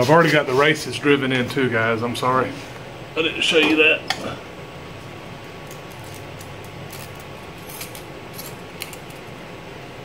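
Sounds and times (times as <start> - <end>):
background hum: 0.0 - 10.0.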